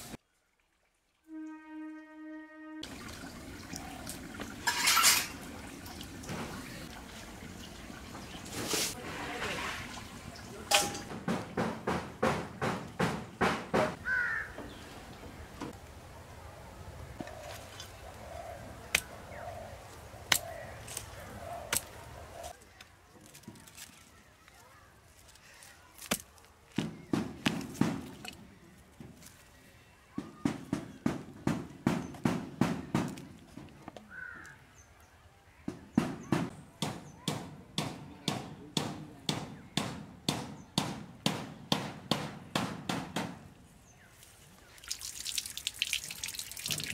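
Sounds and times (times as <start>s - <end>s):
crow cawing: 14.0s - 14.7s, 34.1s - 34.6s.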